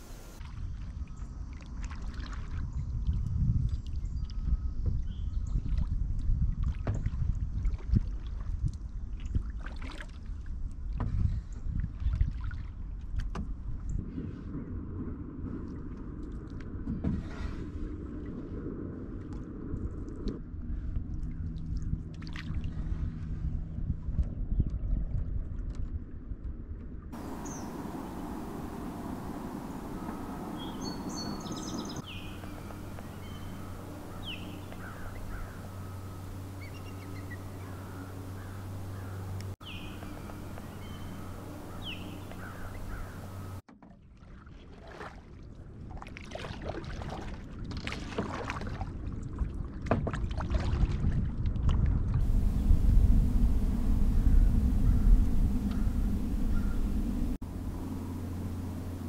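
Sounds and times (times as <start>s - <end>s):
paddle splashing water: 0.0s - 3.2s, 5.5s - 14.6s, 20.2s - 23.2s, 27.2s - 59.0s
birds chirping: 27.2s - 43.6s, 52.2s - 59.0s
steady low hum: 27.2s - 43.6s, 52.2s - 59.0s
paddle knocking on canoe: 49.8s - 50.9s.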